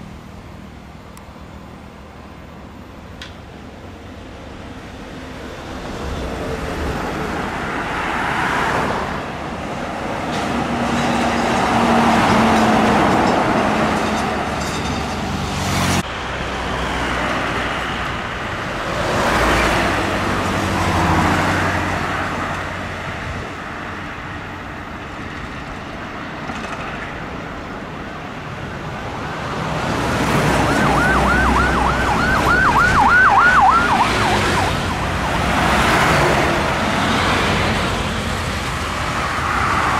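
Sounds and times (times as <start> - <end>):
road traffic passing: 0.0 - 39.9
siren-like whoops: 30.6 - 34.8.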